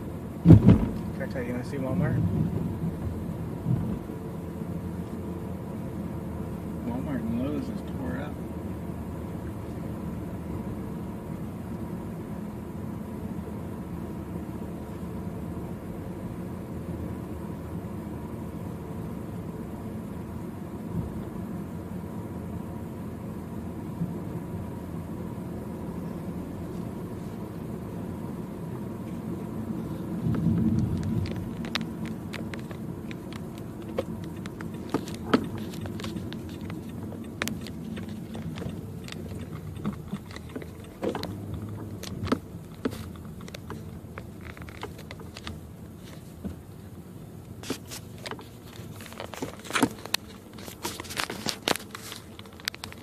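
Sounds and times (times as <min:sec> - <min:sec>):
car engine and road rumble: 0:00.0 - 0:53.0
sharp clicks and taps: 0:30.7 - 0:45.6.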